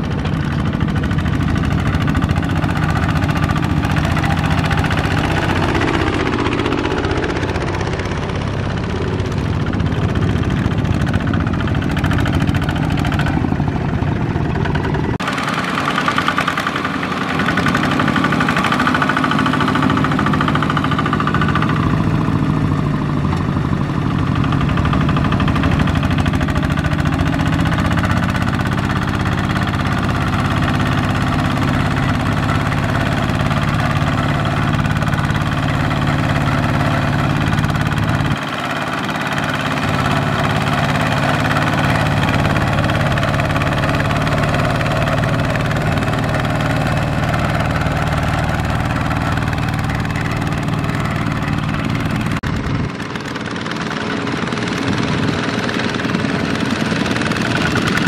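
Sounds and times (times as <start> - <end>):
diesel engine knocking: 0.0 - 58.0.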